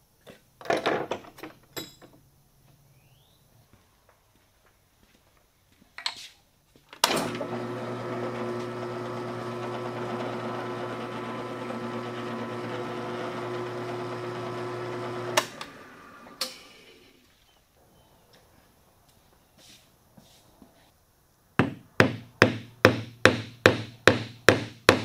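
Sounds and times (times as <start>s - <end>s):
drill press motor humming: 7.1s - 16.5s.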